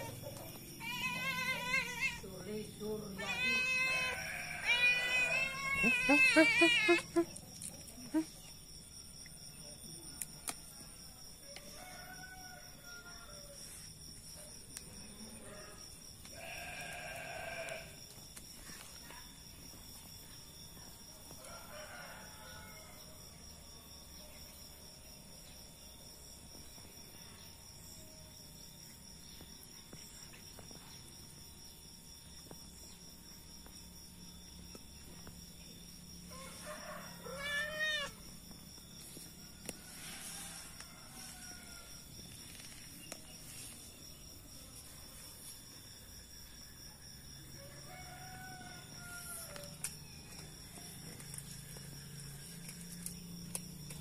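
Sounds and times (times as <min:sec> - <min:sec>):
cat meowing: 0:00.8 - 0:02.2, 0:03.2 - 0:07.1, 0:37.2 - 0:38.2.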